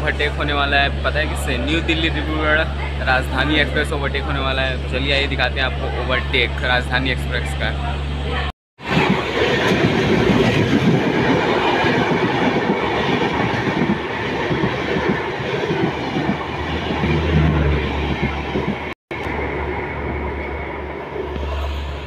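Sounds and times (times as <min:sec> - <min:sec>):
train wheels on rails: 0:08.8 - 0:22.0.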